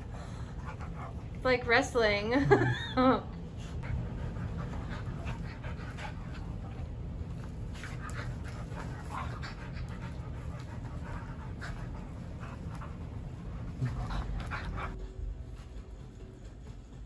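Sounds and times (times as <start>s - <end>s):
dogs panting: 0.0s - 2.3s, 3.4s - 17.0s
dogs scuffling: 4.0s - 17.0s.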